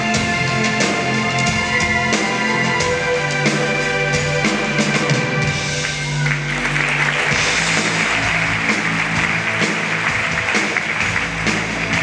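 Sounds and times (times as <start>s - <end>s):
stage show music: 0.0s - 12.0s
audience applauding: 5.6s - 12.0s.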